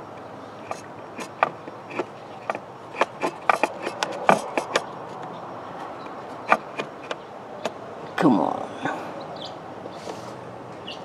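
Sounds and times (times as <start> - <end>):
probe tip clicking on parts: 0.2 - 4.9.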